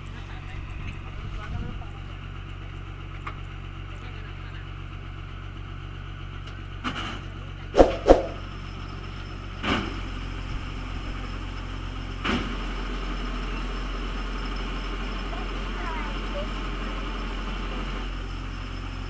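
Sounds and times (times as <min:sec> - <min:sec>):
truck engine idling: 0:00.1 - 0:07.7
sharp clacks: 0:07.8 - 0:08.4.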